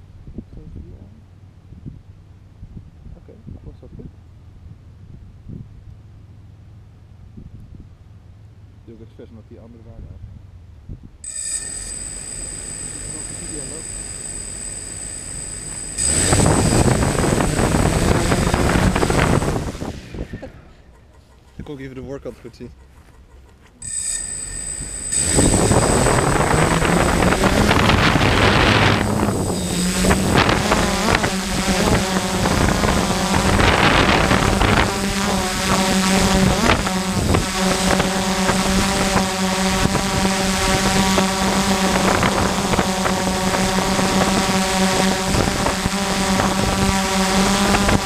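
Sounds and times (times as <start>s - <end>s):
wind noise on microphone: 0.0s - 5.8s, 7.3s - 8.0s, 10.0s - 11.2s, 15.9s - 20.7s, 24.8s - 48.0s
drone motors buzzing: 11.2s - 20.8s, 23.6s - 48.0s.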